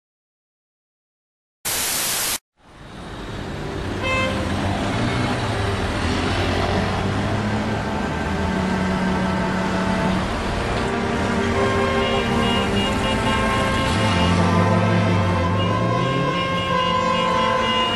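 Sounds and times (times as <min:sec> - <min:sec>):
static hiss: 0:01.7 - 0:02.4
slow road traffic: 0:01.7 - 0:17.9
car horn toot: 0:04.0 - 0:04.4, 0:11.3 - 0:17.9.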